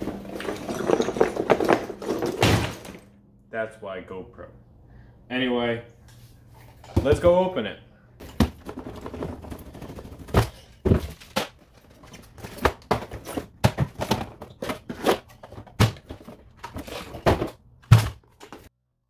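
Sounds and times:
cardboard knocks and thuds: 0.7 - 3.0, 8.2 - 11.6, 12.4 - 16.5.

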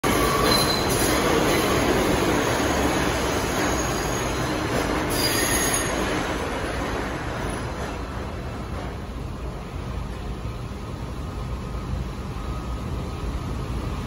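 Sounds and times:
subway train wheels rumbling: 0.0 - 14.0
faint wheel squeals: 5.1 - 6.1.

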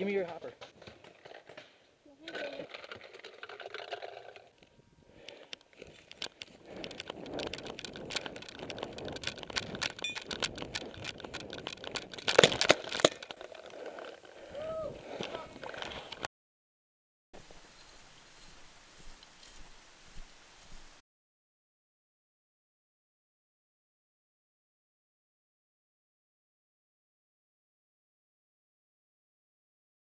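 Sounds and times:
gear rattling and clicking: 2.3 - 16.3
sharp cracks: 5.2 - 16.3
footsteps running over grass: 5.8 - 12.6, 18.4 - 21.0.

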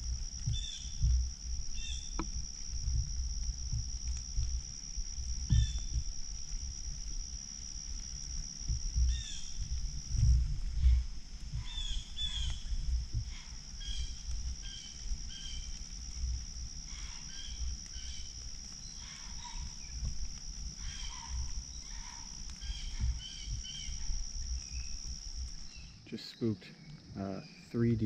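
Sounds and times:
high insect drone: 0.0 - 28.0
small birds chirping: 0.4 - 2.3, 5.5 - 6.1, 9.0 - 9.7, 10.8 - 15.9, 16.9 - 28.0.

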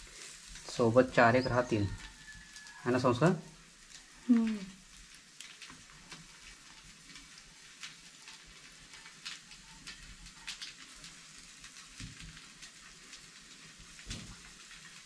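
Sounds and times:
fish sizzling in oil: 0.0 - 15.0
oil pops and crackles: 3.5 - 15.0.

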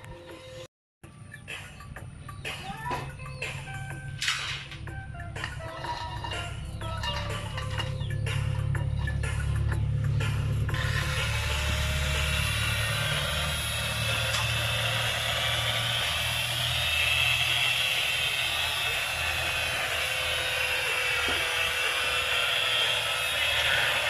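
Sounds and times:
power tool whining: 3.7 - 24.0.

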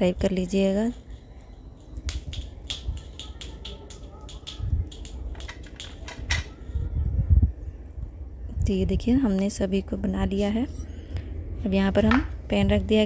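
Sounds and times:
metal utensil clicks and taps: 2.1 - 6.4.

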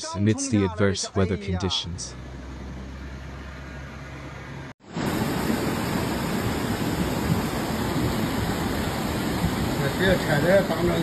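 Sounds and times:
floodwater rushing through street: 4.8 - 11.0.

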